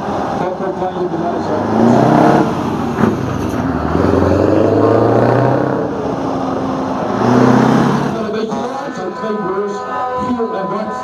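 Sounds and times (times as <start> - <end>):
diesel truck engine pulling away: 0.0 - 8.4.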